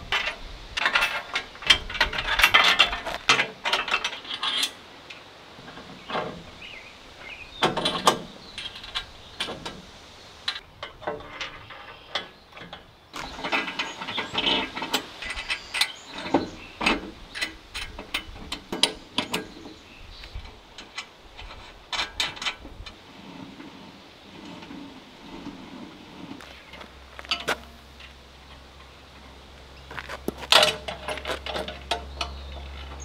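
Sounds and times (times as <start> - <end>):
metallic clicks and clanks of tools: 0.1 - 6.3, 10.4 - 19.7, 20.4 - 23.0, 26.7 - 29.3, 30.3 - 33.0.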